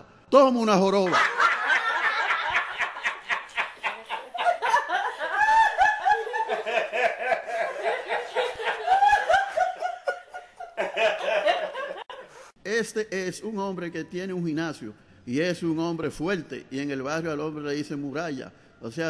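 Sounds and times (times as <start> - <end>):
person laughing: 1.3 - 12.4.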